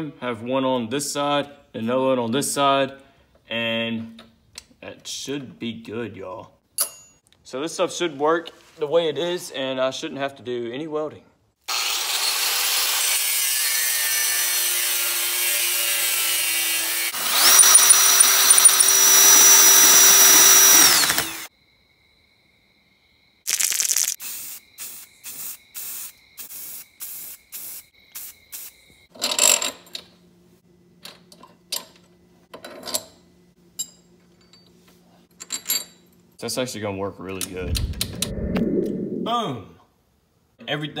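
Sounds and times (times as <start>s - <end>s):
power tool cutting steel: 11.7s - 21.5s.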